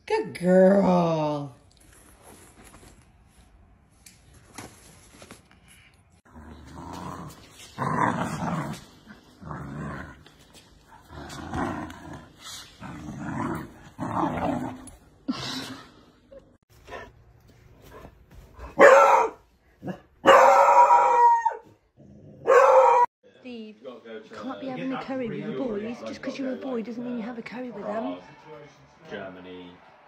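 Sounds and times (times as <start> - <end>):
puppy play-growling: 6.3 - 15.1
hound baying: 22.4 - 23.1.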